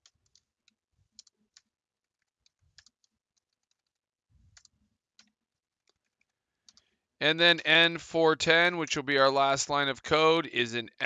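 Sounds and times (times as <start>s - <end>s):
faint keyboard typing: 0.0s - 7.0s.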